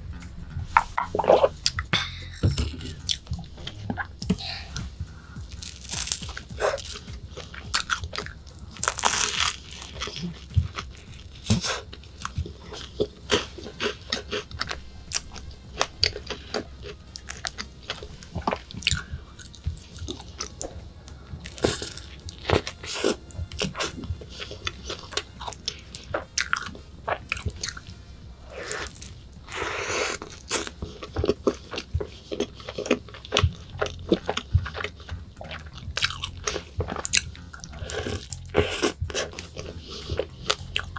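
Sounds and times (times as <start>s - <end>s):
chewing with sharp crackles: 0.8s - 40.9s
crunching pastry bites: 5.5s - 20.7s, 21.5s - 28.0s, 30.1s - 40.9s.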